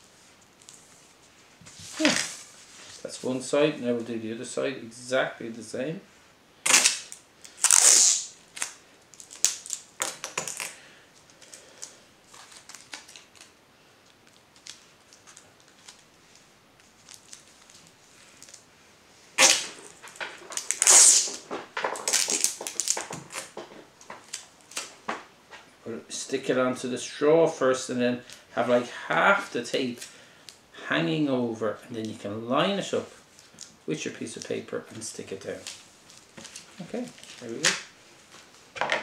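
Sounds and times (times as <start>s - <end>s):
masking tape pulled and torn: 6.6s - 10.8s, 19.4s - 23.6s
paper rustling: 11.2s - 13.5s.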